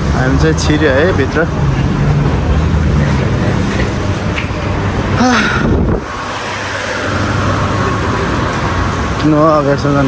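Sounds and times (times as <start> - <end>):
crowd and building rumble: 0.0 - 10.0.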